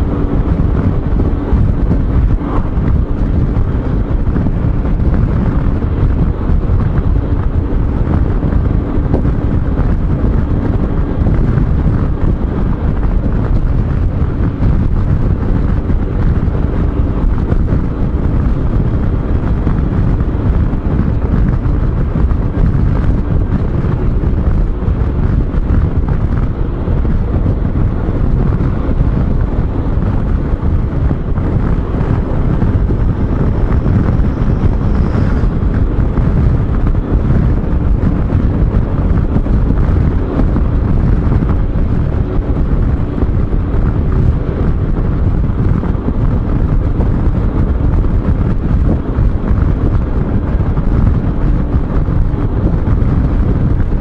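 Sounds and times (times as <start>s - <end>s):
road noise: 0.0s - 54.0s
wind buffeting microphone: 0.0s - 54.0s.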